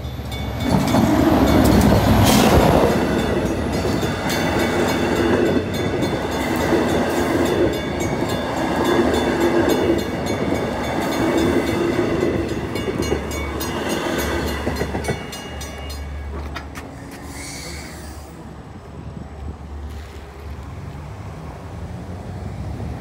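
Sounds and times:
train wheels clattering: 0.0 - 17.4.

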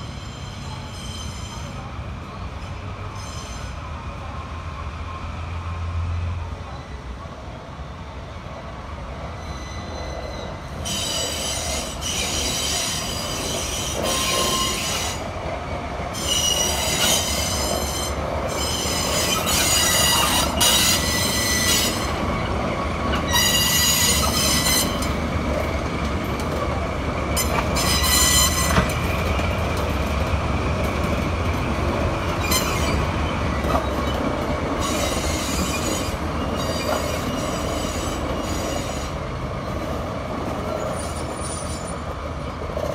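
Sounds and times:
train wheels squealing: 0.0 - 3.9, 9.2 - 15.3, 16.1 - 25.2, 27.4 - 29.2, 32.3 - 39.2, 40.6 - 42.9
diesel locomotive engines droning: 0.0 - 42.9.

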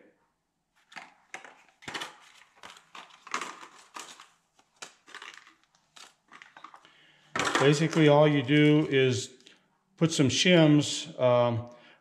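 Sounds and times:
plastic blister pack crackling: 1.0 - 8.9.

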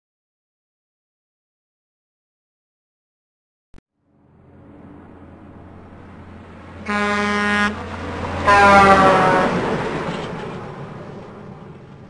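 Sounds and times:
low engine rumble: 3.9 - 12.0
truck air horn blasts: 6.8 - 9.8.

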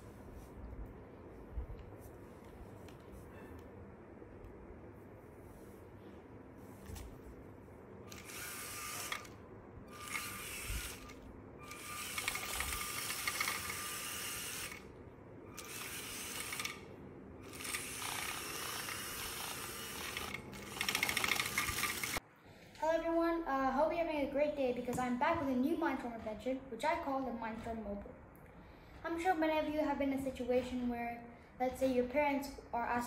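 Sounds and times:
toy truck electric motors running: 8.1 - 14.9, 15.5 - 22.2.

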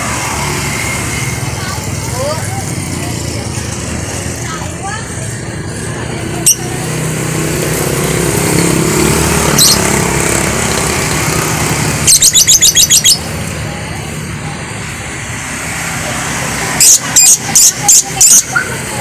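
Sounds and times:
motorbike engine passing: 0.0 - 19.0
street traffic: 0.0 - 19.0
lovebird chirping: 6.4 - 6.7, 9.5 - 9.9, 12.1 - 13.3.

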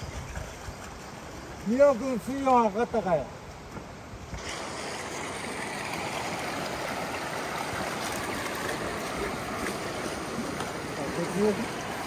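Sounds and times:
rocky river flowing: 4.4 - 12.0
water pouring from hose outlet: 4.4 - 12.0.

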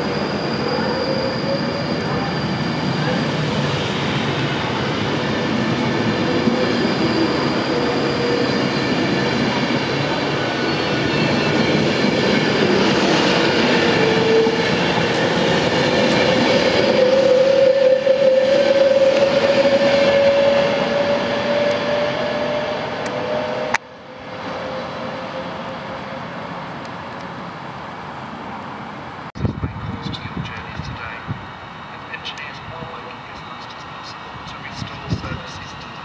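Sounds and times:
train wheels rumbling on rails: 0.0 - 25.5.

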